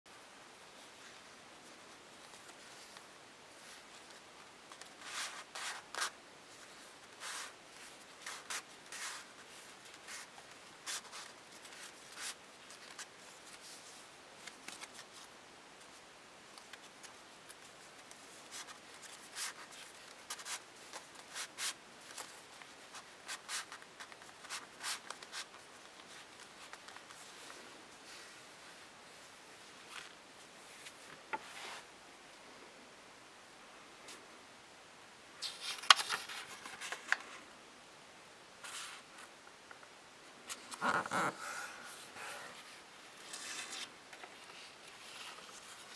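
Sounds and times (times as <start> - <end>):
paper rustling and scraping: 2.2 - 15.3, 35.4 - 37.4, 40.5 - 45.9.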